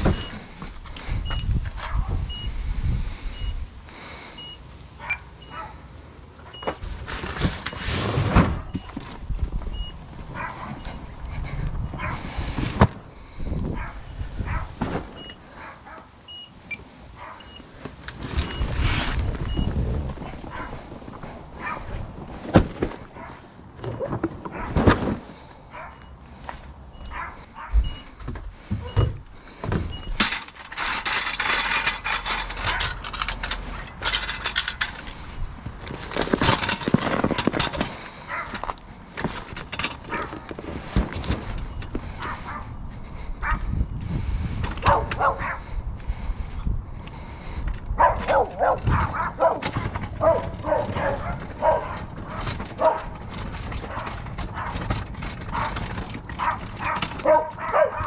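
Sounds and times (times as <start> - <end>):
dog barking: 1.8 - 2.2, 5.0 - 5.8, 10.3 - 10.8, 12.0 - 12.2, 13.7 - 14.8, 15.5 - 16.1, 17.2 - 17.5, 20.5 - 20.8, 21.6 - 21.9, 25.7 - 26.0, 27.1 - 27.8, 38.3 - 38.5, 42.5 - 42.7, 43.4 - 43.6, 44.8 - 45.6, 48.0 - 53.1, 56.4 - 58.0.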